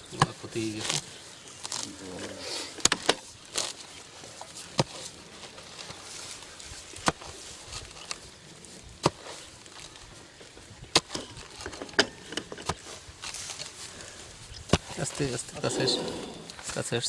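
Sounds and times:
hoe striking damp soil: 0:08.9 - 0:10.0, 0:10.8 - 0:13.8
hoe scraping soil: 0:15.0 - 0:16.8.

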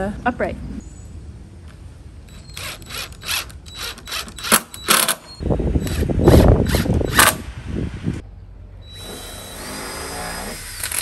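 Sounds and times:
cordless drill driving screws: 0:02.3 - 0:05.2, 0:08.9 - 0:11.0.

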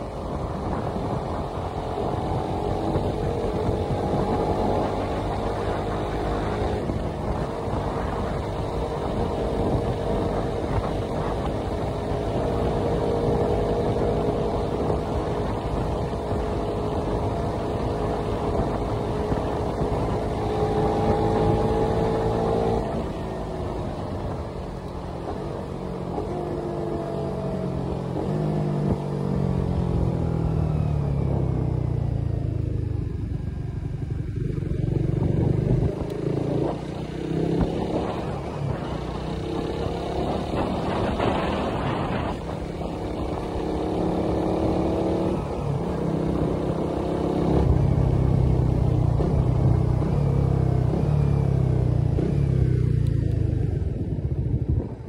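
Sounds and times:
motorcycle engine running: 0:00.0 - 0:55.0
wind rushing over microphone: 0:00.0 - 0:55.0.

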